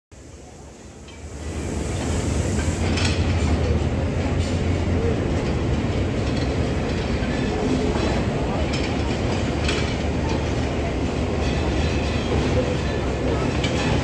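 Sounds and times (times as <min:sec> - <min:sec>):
train rumbling: 0:00.2 - 0:14.0
wheels clicking over rail joints: 0:04.3 - 0:14.0.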